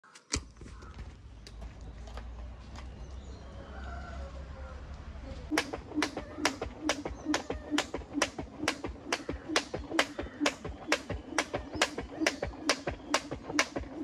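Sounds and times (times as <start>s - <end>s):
skipping rope slapping paving stones: 5.5s - 14.0s.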